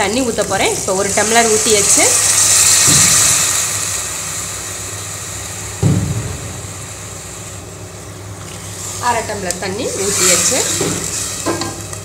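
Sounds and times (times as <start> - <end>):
steady low hum: 0.0 - 12.0
water sizzling in hot oil: 0.0 - 12.0.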